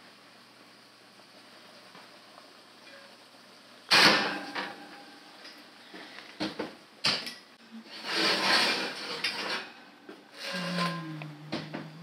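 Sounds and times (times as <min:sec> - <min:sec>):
oven rack clanking: 0:03.9 - 0:05.6
metal rack scraping on rails: 0:07.8 - 0:11.1.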